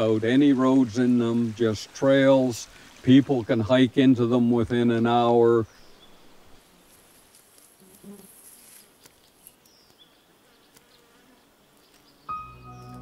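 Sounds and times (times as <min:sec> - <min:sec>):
insects buzzing: 0:05.7 - 0:13.0.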